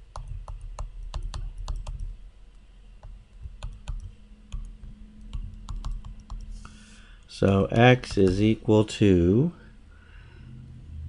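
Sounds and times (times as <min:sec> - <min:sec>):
stylus tapping on tablet: 0:00.1 - 0:02.1, 0:03.0 - 0:06.5, 0:07.6 - 0:08.6.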